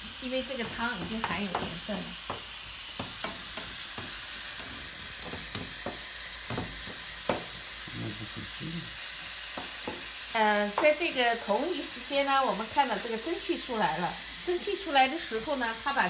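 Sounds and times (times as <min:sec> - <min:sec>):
ground beef sizzling in pan: 0:00.0 - 0:16.0
spatula clicking and scraping pan: 0:00.6 - 0:07.5.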